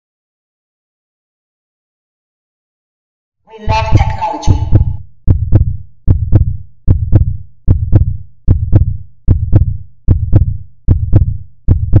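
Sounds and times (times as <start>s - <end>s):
heartbeat lub-dub: 3.6s - 12.0s.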